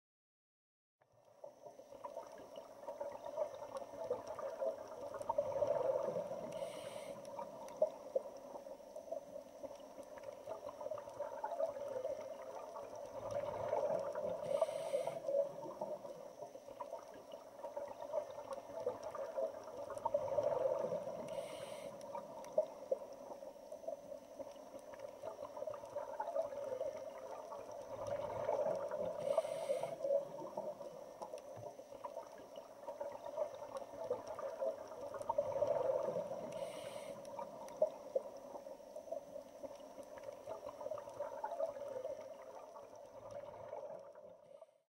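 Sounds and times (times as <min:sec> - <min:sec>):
regulator bubbles gurgling: 0:01.2 - 0:44.8
regulator breathing hiss: 0:06.5 - 0:07.4, 0:14.4 - 0:15.4, 0:21.2 - 0:22.2, 0:29.2 - 0:30.2, 0:36.5 - 0:37.4.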